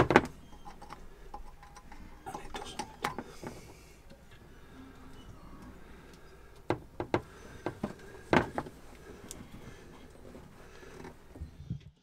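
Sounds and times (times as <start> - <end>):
pump pipe clicks and knocks: 0.0 - 1.8, 6.6 - 8.7.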